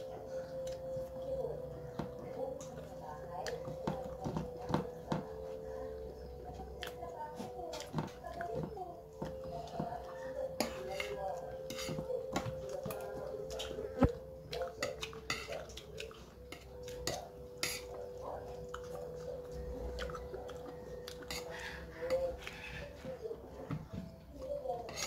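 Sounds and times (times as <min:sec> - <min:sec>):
person chewing: 0:12.6 - 0:22.6.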